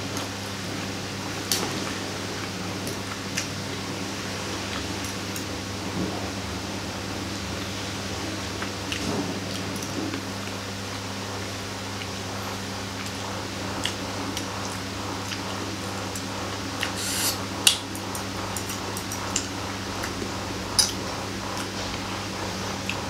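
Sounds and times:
steady low hum: 10.0s - 23.0s.

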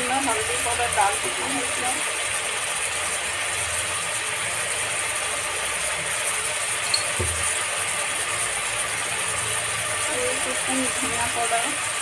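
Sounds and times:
meat sizzling in oil: 0.0s - 12.0s.

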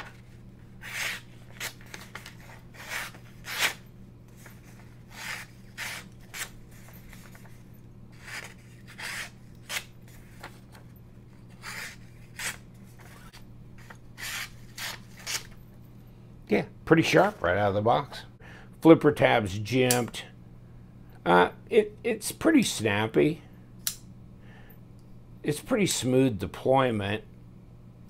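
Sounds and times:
paper rustling: 0.0s - 10.9s
knife slicing through paper: 0.8s - 3.8s, 8.2s - 9.9s.

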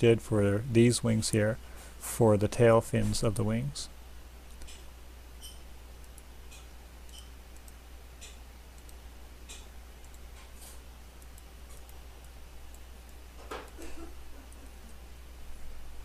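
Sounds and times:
low electrical hum: 0.0s - 16.0s
computer mouse clicks: 4.5s - 10.3s, 11.2s - 13.8s.

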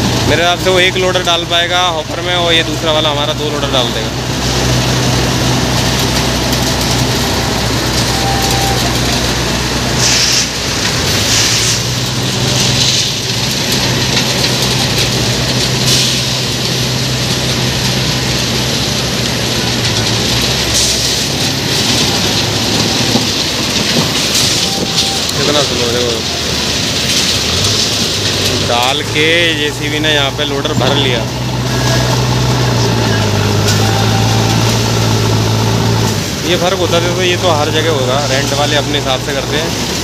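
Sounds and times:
diesel engines running: 0.0s - 40.0s
hiss of crushed stone: 9.5s - 17.3s.

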